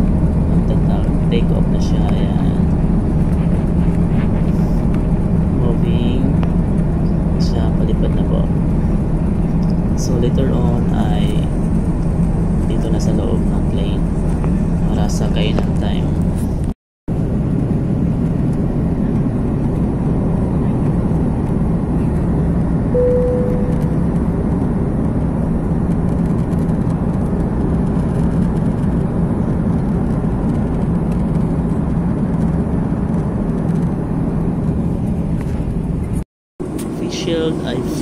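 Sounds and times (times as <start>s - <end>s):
jet engines rumbling in cabin: 0.0s - 38.0s
brief tone: 22.9s - 24.3s.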